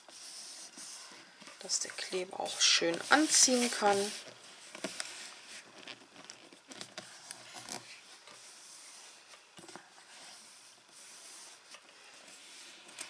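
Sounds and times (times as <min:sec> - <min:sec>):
hands rubbing on paper: 0:00.0 - 0:05.9, 0:10.1 - 0:13.0.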